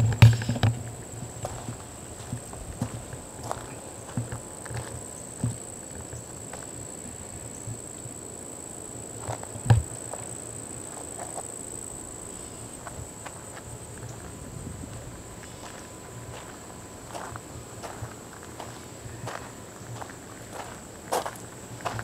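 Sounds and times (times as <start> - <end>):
footsteps on hard surface: 0.0 - 5.6
insects trilling: 0.0 - 22.0.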